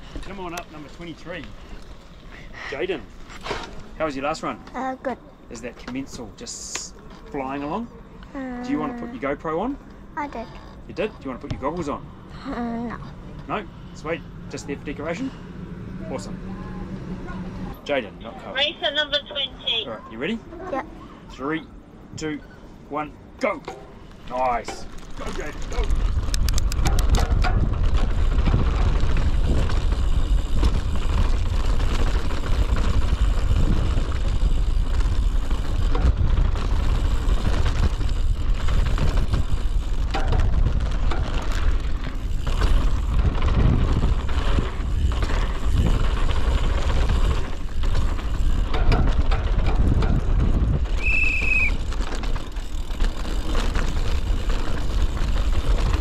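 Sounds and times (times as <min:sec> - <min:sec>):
bike rattling over ground: 0:00.0 - 0:04.8, 0:23.5 - 0:56.0
bike tyre noise on dirt: 0:00.0 - 0:04.8, 0:23.8 - 0:56.0
wind buffeting on microphone: 0:25.2 - 0:56.0.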